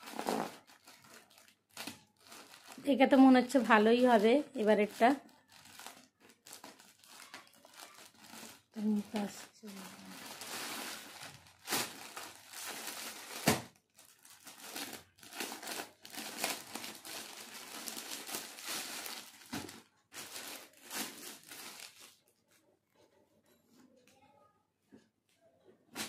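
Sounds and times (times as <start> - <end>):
plastic packaging crinkling: 0.0 - 22.2.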